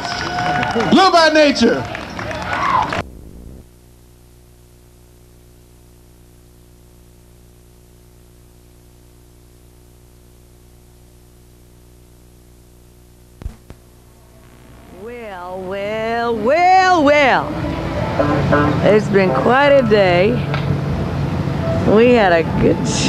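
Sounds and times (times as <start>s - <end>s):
electrical hum with buzz: 1.3s - 23.0s
burst of noise: 2.7s - 4.0s, 13.4s - 15.5s
sharp clicks: 13.4s - 14.8s.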